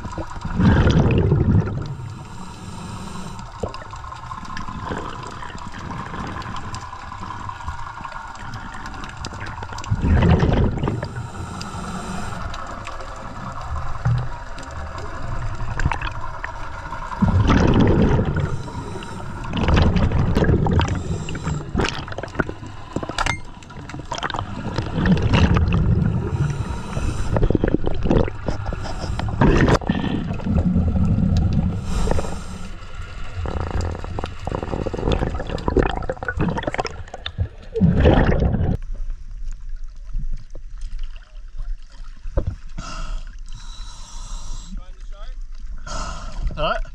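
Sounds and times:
regulator bubbles gurgling underwater: 0.0 - 46.9
small water splashes: 12.6 - 31.6.

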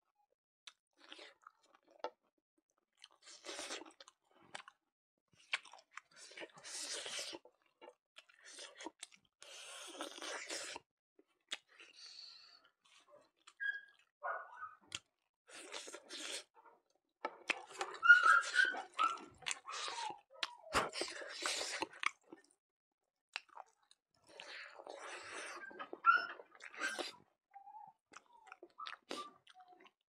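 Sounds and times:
chewing and lip-smacking: 0.6 - 2.2, 2.9 - 4.8, 5.4 - 16.5, 17.3 - 22.6, 23.3 - 30.0
squeaky mouth sounds: 17.5 - 22.0, 25.0 - 29.9.

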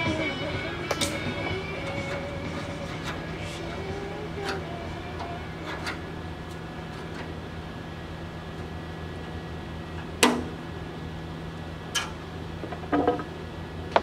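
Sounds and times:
metal clanks: 0.0 - 7.4
steady low hum: 0.0 - 14.0.

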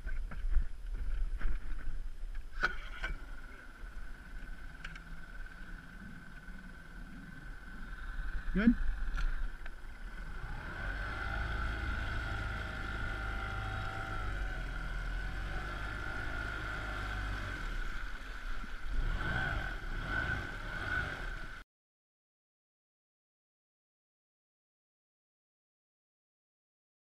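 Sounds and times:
outboard motor running: 2.7 - 21.6.

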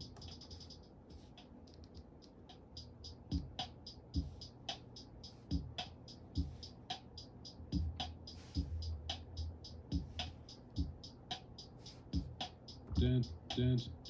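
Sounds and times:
hi-hat ticks: 0.0 - 14.0
deep kick drum: 12.2 - 13.3.

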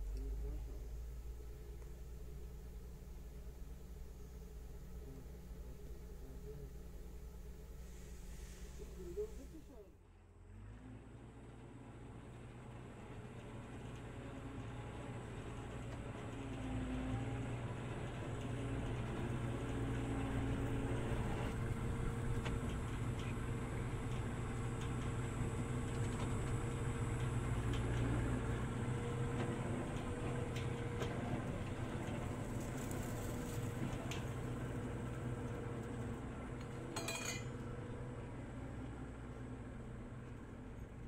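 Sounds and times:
farm machinery engine running: 0.0 - 41.0
metallic clinks and rattles: 37.0 - 37.5.

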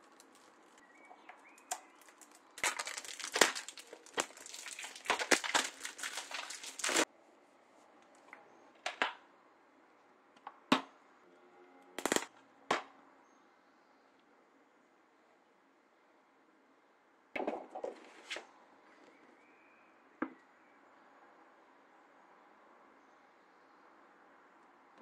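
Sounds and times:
plastic bag crinkling: 0.0 - 7.1.

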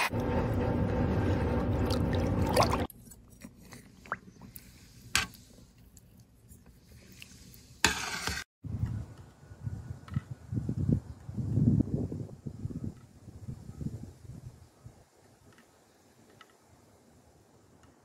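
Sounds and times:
liquid sloshing with drips: 1.7 - 2.9
rushing liquid: 1.7 - 2.9.

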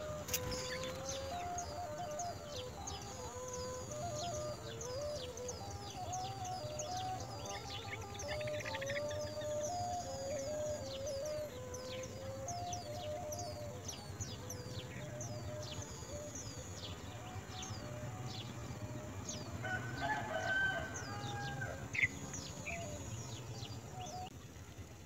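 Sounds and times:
nestlings peeping: 0.0 - 24.3.

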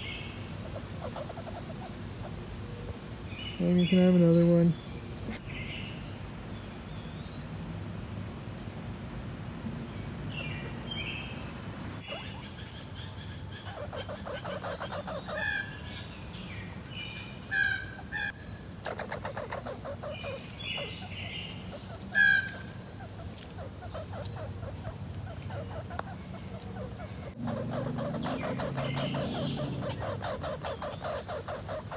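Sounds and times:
squirrel sharp calls: 0.0 - 2.8, 12.0 - 16.2, 17.4 - 31.9
squirrel high chirps: 12.1 - 12.7, 18.9 - 31.9
squirrel chattering rattle: 18.8 - 22.2, 23.1 - 31.9.

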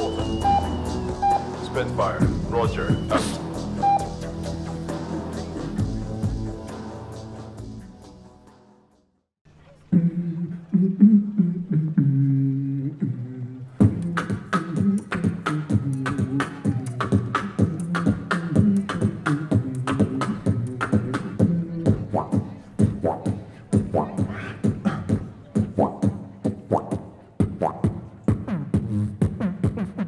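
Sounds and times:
beatboxing into a microphone: 0.0 - 4.3, 9.9 - 30.0
low held vocal notes: 9.8 - 27.3.

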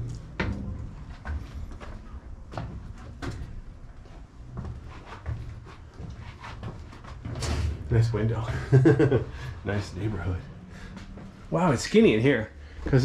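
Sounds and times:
low rumble: 0.0 - 4.8
footsteps on wooden floor: 0.0 - 7.6, 10.8 - 11.5.

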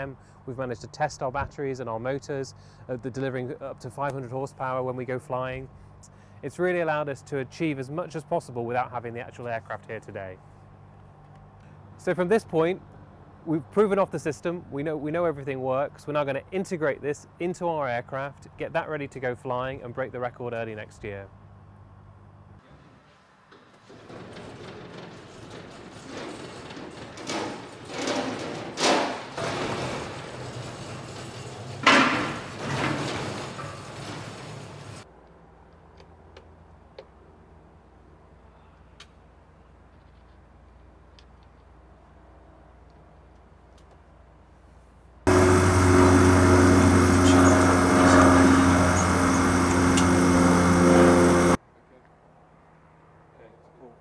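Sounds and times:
wheeled rig rumbling on concrete: 23.7 - 35.1, 45.3 - 51.6
mechanical drone with hiss: 45.3 - 51.6.

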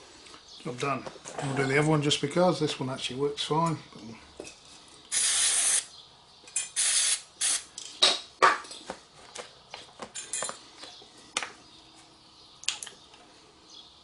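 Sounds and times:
aerosol spray hiss: 5.1 - 5.9, 6.8 - 7.6.

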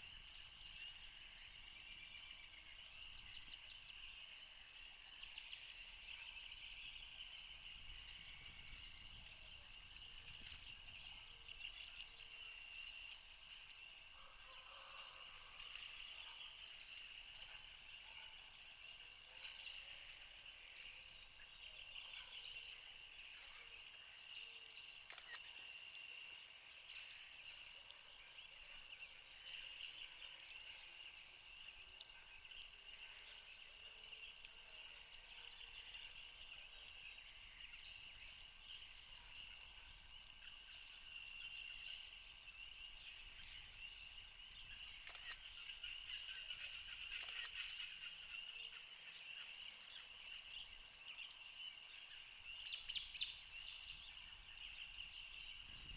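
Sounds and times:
distant frogs peeping: 0.0 - 55.9
soft clicks: 25.1 - 25.4.

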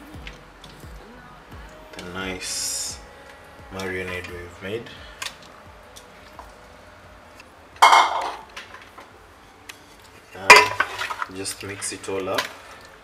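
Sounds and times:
steel mixing bowl clattering: 7.8 - 9.0, 10.3 - 12.9.

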